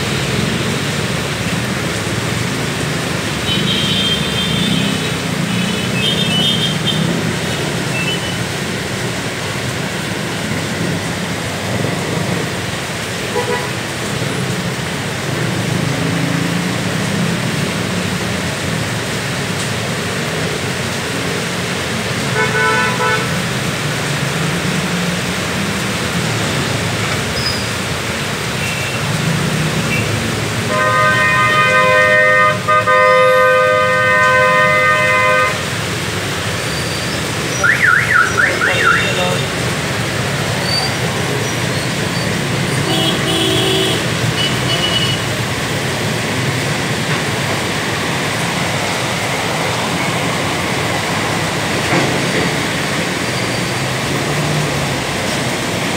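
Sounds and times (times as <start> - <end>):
heavy rain hissing: 0.0 - 55.9
car horn: 3.4 - 7.2, 13.3 - 13.8, 22.3 - 23.4, 30.7 - 35.7, 37.6 - 39.5, 42.7 - 45.4.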